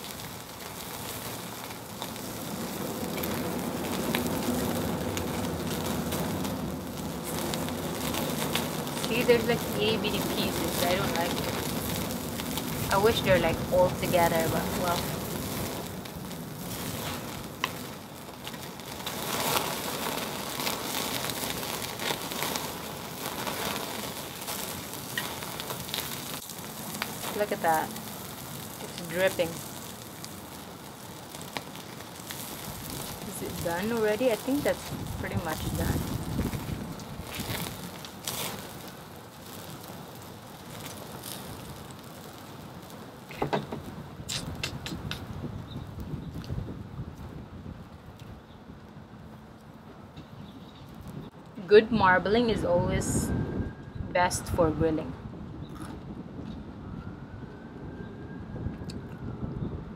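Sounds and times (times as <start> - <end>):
fat sizzling on charcoal: 0.0 - 58.0
sharp pops: 43.3 - 45.6.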